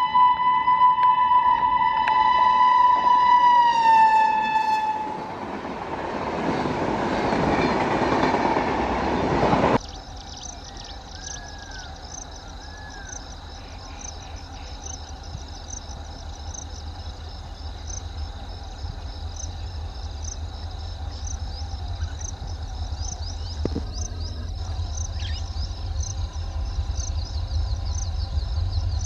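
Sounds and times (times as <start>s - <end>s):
diesel locomotive rumble: 1.3s - 29.0s
high steady insect buzz: 9.8s - 29.0s
insects chirping: 9.8s - 29.0s.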